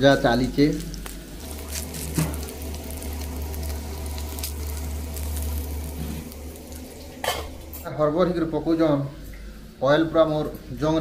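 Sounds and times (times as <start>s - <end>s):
chillies sizzling in oil: 0.0s - 8.0s
low hum: 0.7s - 9.8s.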